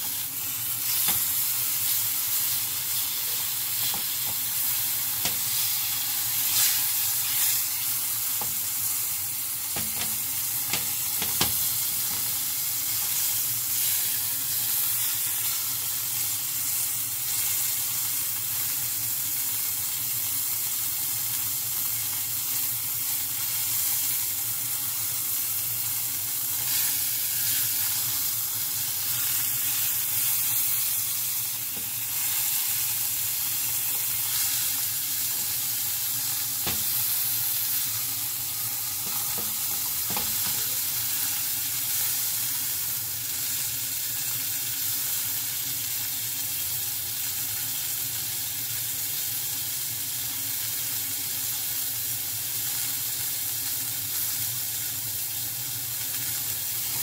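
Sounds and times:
meat sizzling in a frying pan: 0.0s - 57.0s.

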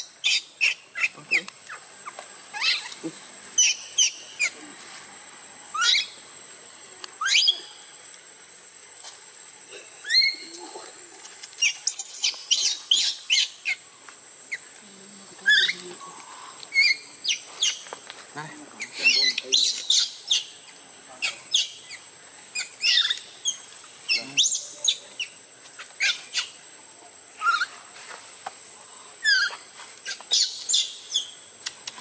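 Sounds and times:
baby monkey squealing: 2.5s - 3.0s, 5.8s - 6.1s, 7.2s - 7.5s, 10.0s - 10.4s, 11.6s - 13.8s, 22.6s - 23.6s, 27.4s - 27.7s.

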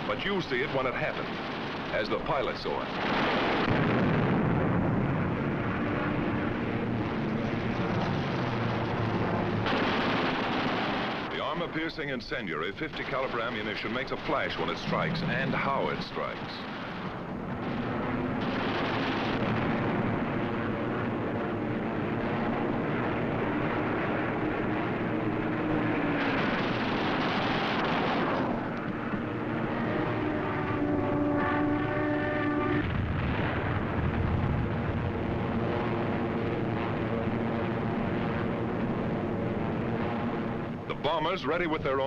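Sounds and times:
propeller plane engines droning: 0.0s - 42.0s
steady tone in the drone: 14.4s - 42.0s.

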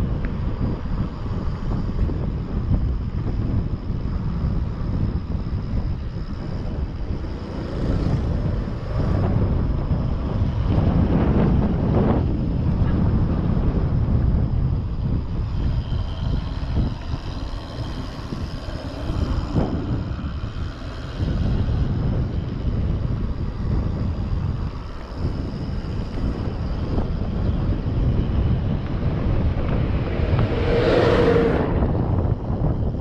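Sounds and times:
bike rolling on paved road: 0.0s - 33.0s
wind buffeting microphone: 0.0s - 33.0s
bus passing: 6.3s - 11.7s, 15.0s - 33.0s.

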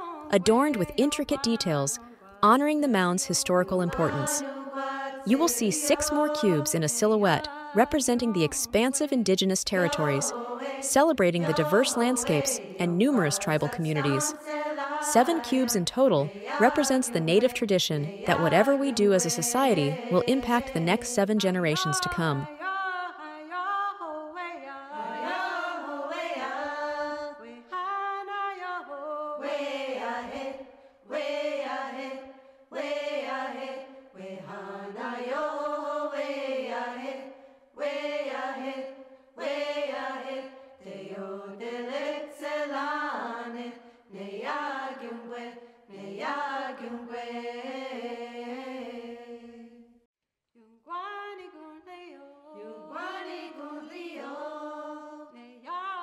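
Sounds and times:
person singing unaccompanied chant: 0.0s - 22.6s, 24.9s - 27.1s.

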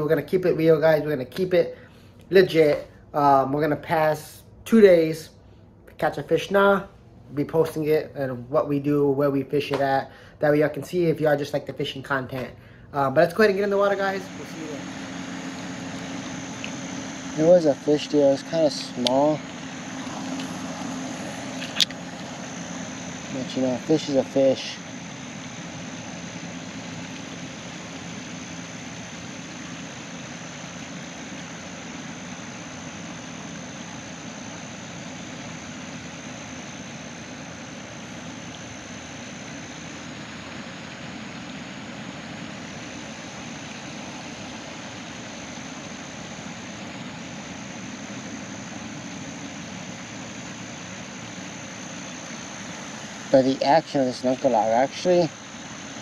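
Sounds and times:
even hiss: 0.0s - 56.0s
faint low hum: 0.0s - 56.0s
high-pitched whine: 0.0s - 56.0s.

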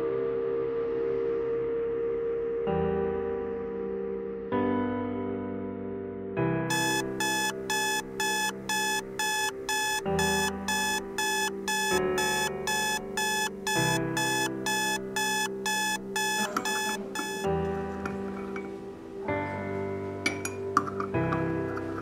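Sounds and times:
background music: 0.0s - 22.0s
alarm clock beeping: 6.7s - 17.5s.

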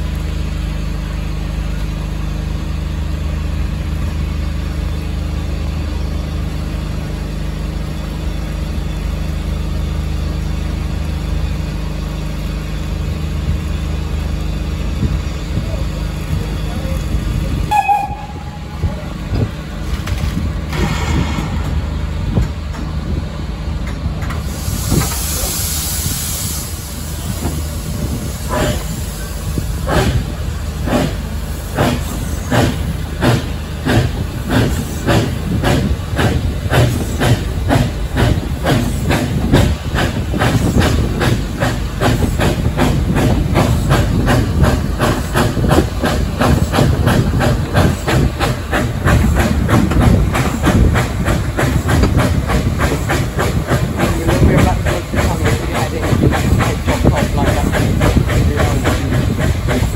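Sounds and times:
low train running rumble: 0.0s - 59.9s
steam train exhaust beats: 0.0s - 59.9s
steam hiss: 24.3s - 59.9s.

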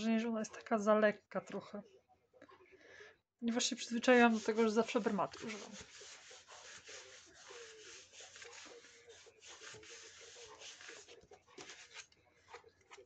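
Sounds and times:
paper rubbing and rustling: 3.9s - 13.0s.

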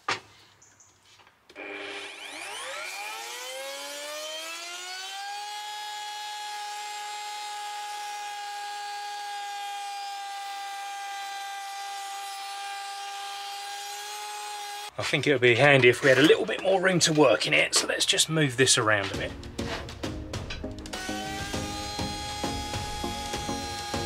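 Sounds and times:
router motor whine: 1.5s - 14.9s, 20.8s - 24.0s.

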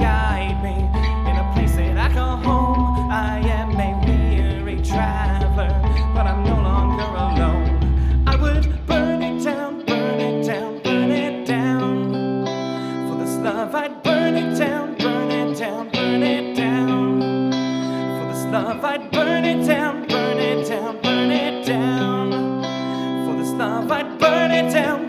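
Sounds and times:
electric guitar through amplifier: 0.0s - 25.0s.

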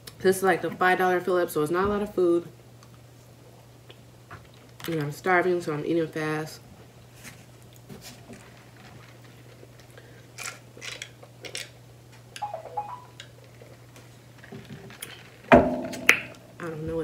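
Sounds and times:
steady low hum: 15.3s - 17.0s.

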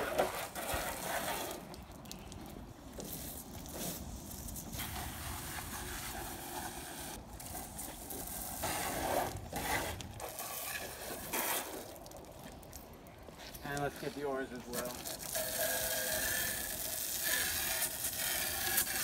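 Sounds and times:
hose spray hissing on a boat hull: 2.9s - 12.2s, 13.5s - 19.0s.

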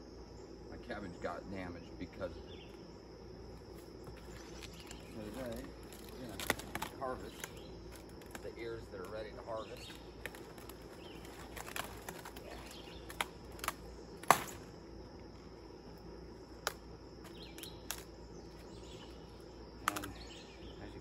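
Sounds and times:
cabbage leaves rustling and snapping: 3.7s - 14.6s, 16.6s - 18.1s, 19.8s - 20.2s
sharp cracks: 4.7s - 14.8s, 16.6s - 18.2s, 19.8s - 20.2s.

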